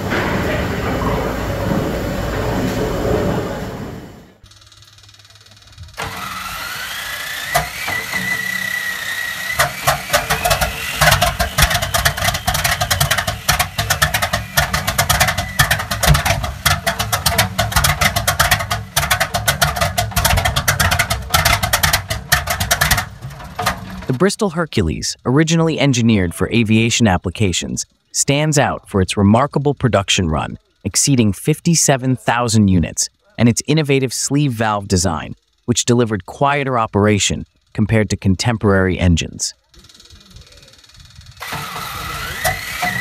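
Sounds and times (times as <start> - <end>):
aircraft engine firing: 0.0 - 4.5, 5.4 - 24.4, 41.4 - 43.0
starter whine: 0.0 - 25.3, 39.8 - 43.0
steam engine running: 0.0 - 25.3, 40.0 - 43.0.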